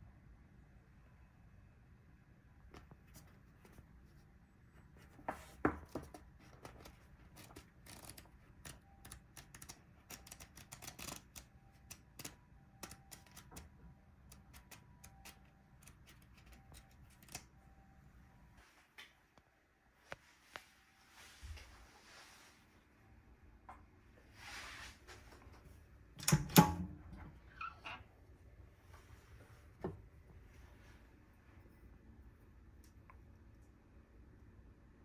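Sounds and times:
paper pages flicking and rustling: 6.0s - 13.6s.

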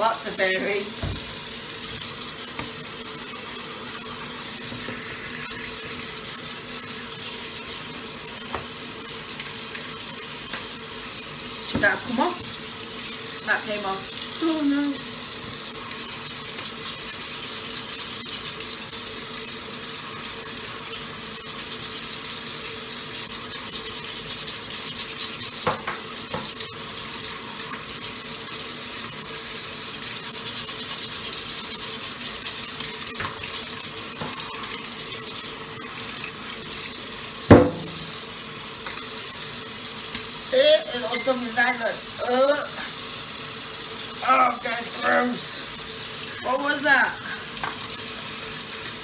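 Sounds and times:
tap running into sink: 0.9s - 2.8s, 8.4s - 8.8s, 25.6s - 26.6s, 37.4s - 38.2s, 47.6s - 48.0s
knocks against sink: 1.0s - 1.3s, 37.5s - 38.0s
sharp clunk: 37.5s - 38.0s.

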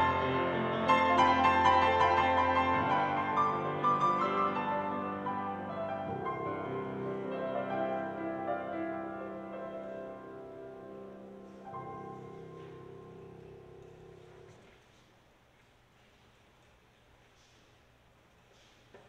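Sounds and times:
slow instrumental music: 0.0s - 14.4s.

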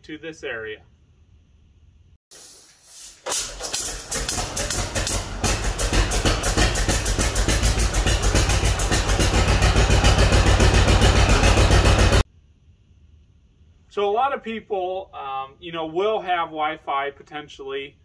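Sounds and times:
tractor engine starting and running: 3.2s - 12.3s.

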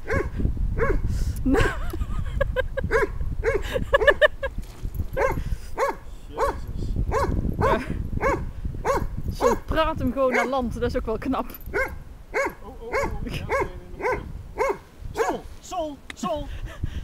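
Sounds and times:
dog barking and yipping: 0.0s - 1.0s, 2.9s - 4.3s, 5.2s - 9.7s, 10.3s - 10.6s, 11.7s - 15.5s.

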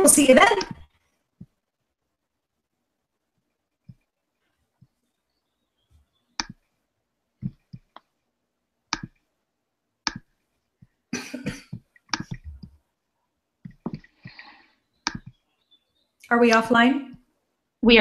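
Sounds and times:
sharp clicks: 15.0s - 15.4s.

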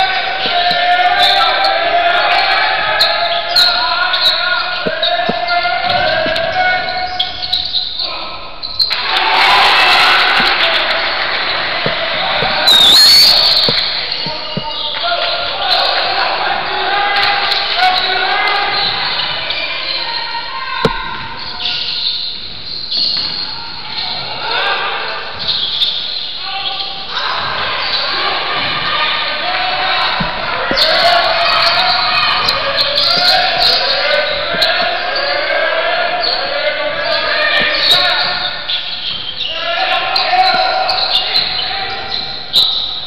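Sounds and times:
murmur of spectators: 0.0s - 43.0s
shouting voices echoing: 0.0s - 43.0s
sneaker squeaks on court: 11.8s - 15.0s, 20.8s - 24.2s, 30.1s - 35.4s, 37.6s - 39.5s
basketball bouncing impact: 20.8s - 21.3s.

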